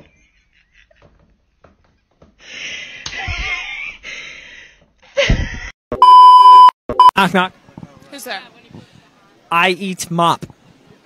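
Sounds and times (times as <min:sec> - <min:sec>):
women laughing hard: 0:03.2 - 0:04.2.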